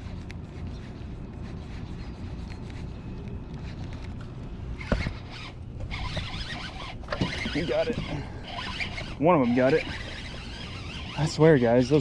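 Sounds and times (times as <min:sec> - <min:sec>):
fishing reel cranking: 0:04.8 - 0:12.0.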